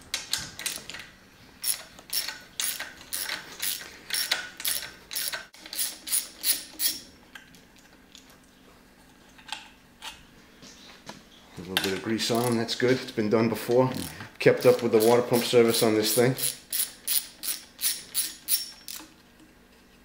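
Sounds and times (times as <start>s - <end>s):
socket ratchet clicking: 1.6s - 7.0s, 14.6s - 19.1s.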